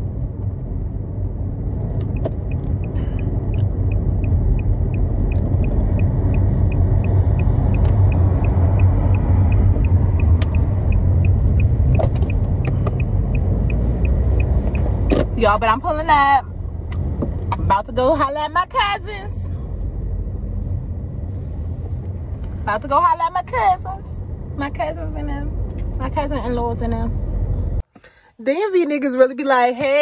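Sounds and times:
car road and engine rumble: 0.0s - 30.0s
turn signal ticking: 0.3s - 18.9s.

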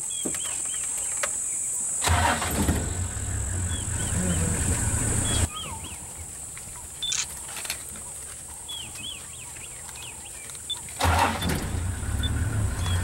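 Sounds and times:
vehicle engine rumble: 2.0s - 9.6s, 10.9s - 13.0s
bird chirps: 3.4s - 7.5s, 12.2s - 13.0s.

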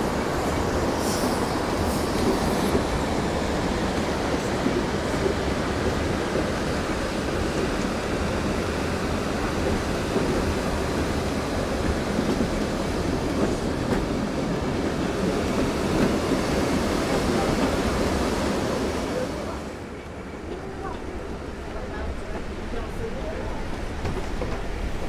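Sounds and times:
train rumbling along track: 0.0s - 25.0s.

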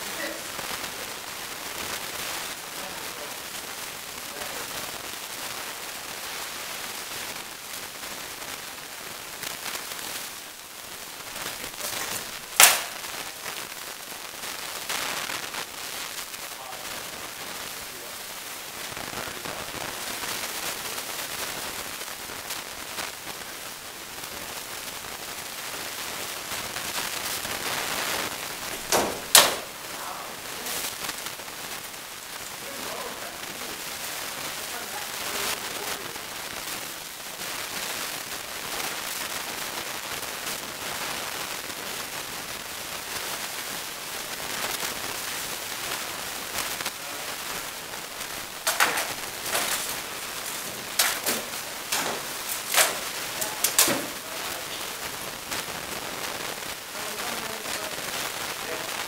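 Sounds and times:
steady hall noise hiss: 0.0s - 59.0s
sharp cracks of weapon blows: 11.9s - 13.2s, 28.9s - 29.7s, 48.6s - 54.2s.

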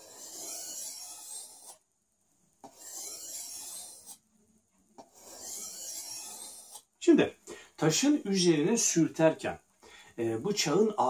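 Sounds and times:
knife rasping on sharpening stone: 0.0s - 1.8s, 2.6s - 4.2s, 5.0s - 6.9s.

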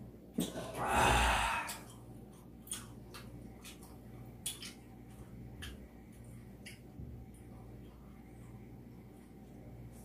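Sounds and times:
breathy sigh: 0.8s - 1.8s.

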